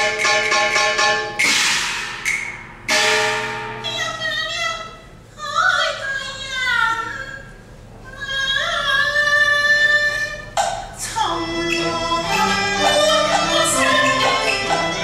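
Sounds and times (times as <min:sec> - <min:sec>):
instrumental accompaniment: 0:00.0 - 0:04.9, 0:11.3 - 0:15.0
opera singing: 0:08.1 - 0:15.0.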